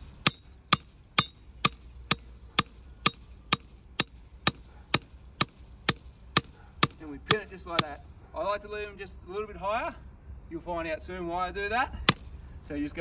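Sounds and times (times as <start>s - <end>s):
hammer striking steel pin: 0.0s - 8.0s, 12.1s - 12.3s.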